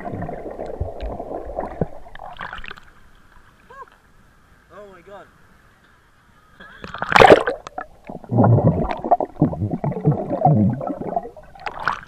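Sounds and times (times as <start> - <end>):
muffled underwater bubbling: 6.8 - 12.0.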